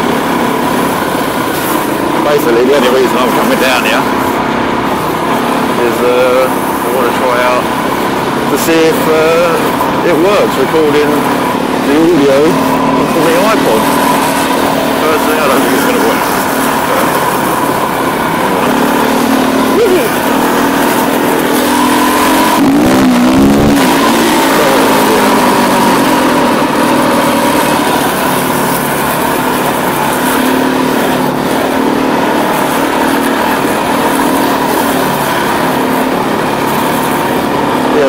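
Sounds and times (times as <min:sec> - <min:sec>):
motorcycle engine running: 0:00.0 - 0:38.0.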